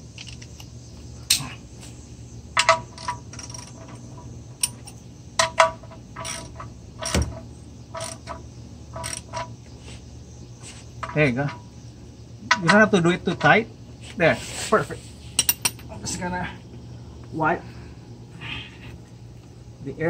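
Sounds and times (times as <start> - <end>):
ratchet wrench clicking: 8.0 - 8.4, 9.0 - 9.5.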